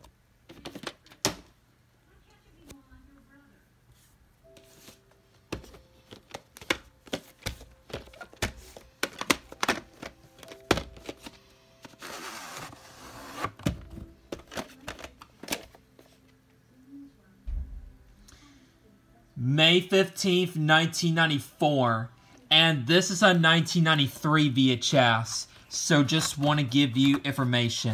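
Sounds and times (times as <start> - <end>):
plastic case rustling: 4.6 - 16.2, 25.2 - 27.9
plastic case clicks and knocks: 6.2 - 11.2.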